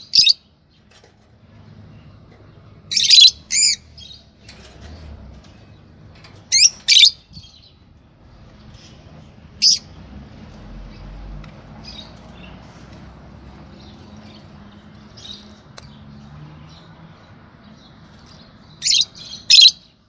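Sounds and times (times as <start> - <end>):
lovebirds shrill chirps: 0.0 - 0.5, 2.8 - 4.6, 6.5 - 7.8, 9.6 - 9.9, 18.2 - 20.0.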